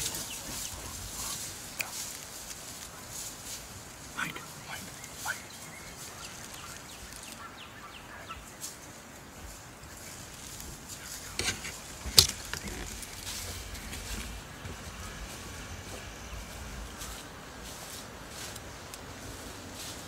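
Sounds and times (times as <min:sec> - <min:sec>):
faint bird chirps: 0:04.2 - 0:08.7.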